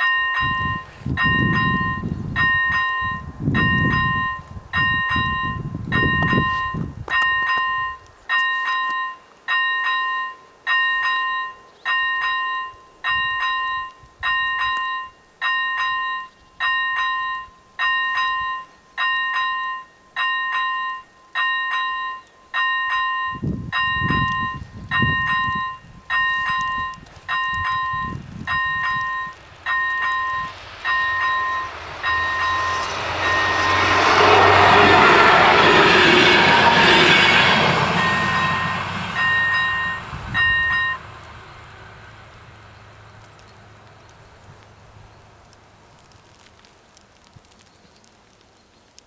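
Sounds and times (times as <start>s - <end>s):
level crossing bell ringing: 0.0s - 33.6s, 38.0s - 41.0s.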